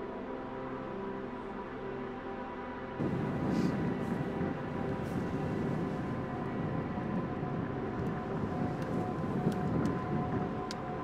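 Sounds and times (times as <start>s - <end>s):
faint sustained drone tones: 0.0s - 11.0s
wind buffeting microphone: 3.0s - 11.0s.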